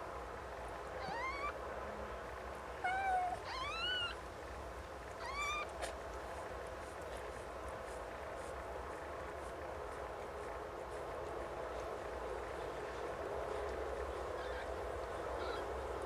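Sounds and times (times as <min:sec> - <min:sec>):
kittens mewing: 0:01.0 - 0:01.6, 0:02.8 - 0:04.2, 0:05.2 - 0:05.8, 0:14.4 - 0:15.7.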